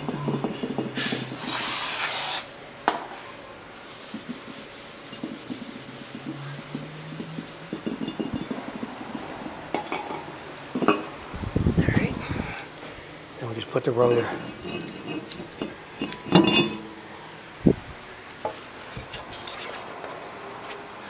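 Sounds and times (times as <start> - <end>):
loud hiss: 1.0 - 2.5.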